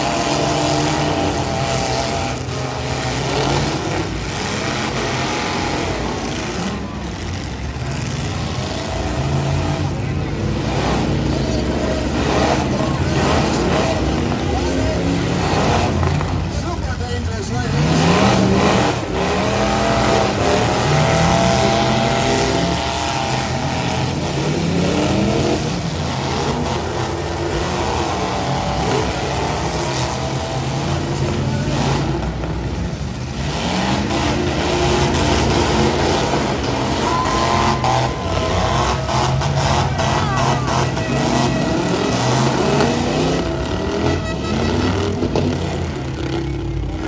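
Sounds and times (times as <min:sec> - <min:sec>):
truck engines revving: 0:00.0 - 0:47.0.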